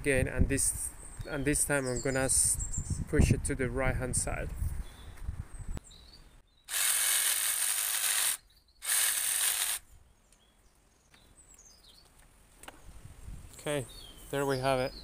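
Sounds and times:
jigsaw cutting wood: 6.7 - 9.8.

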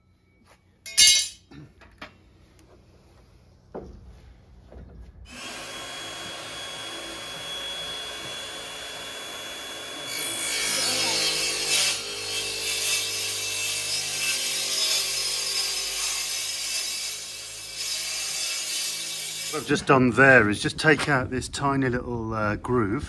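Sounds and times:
circular saw cutting wood: 5.3 - 20.0.

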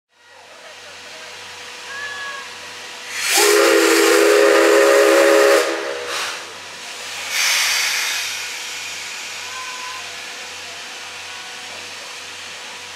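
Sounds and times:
hissing steam: 0.4 - 12.9
steam whistle blast: 3.1 - 6.6.

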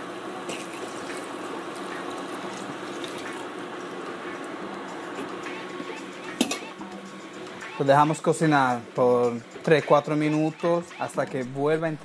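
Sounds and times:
crackling hiss in hot pan: 0.0 - 5.6.

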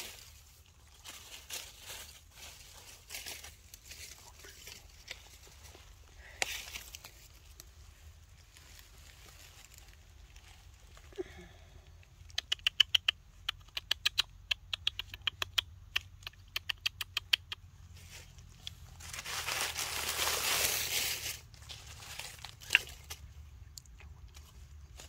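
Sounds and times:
rustling: 0.0 - 11.3, 17.8 - 25.0
baby monkey sucking clicks: 12.2 - 17.6.

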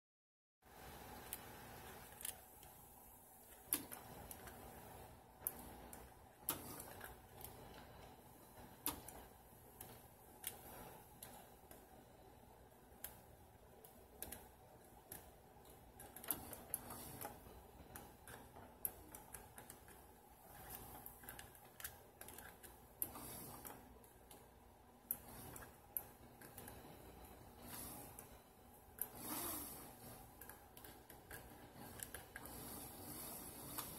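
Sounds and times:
faint steady hum: 0.6 - 33.9
light clicks and taps on metal mechanism: 13.0 - 26.9.

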